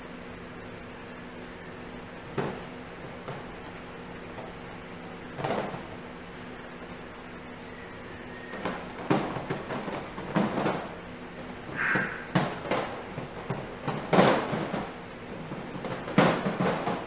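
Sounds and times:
puppies knocking and thumping: 2.3 - 4.6, 5.3 - 6.0, 8.5 - 10.9, 11.6 - 17.0.

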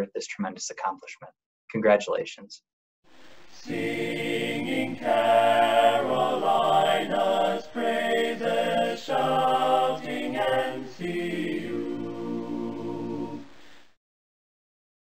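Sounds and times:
choir singing a cappella: 3.5 - 13.7.

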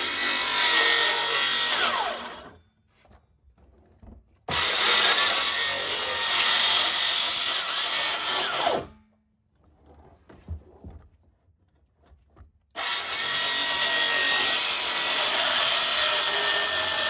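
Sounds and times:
circular saw cutting plastic: 4.5 - 9.0, 12.8 - 17.0.

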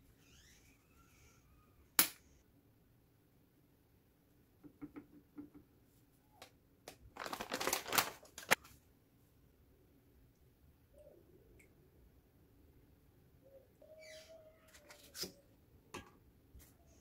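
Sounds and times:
dry food crackling: 6.9 - 8.7.

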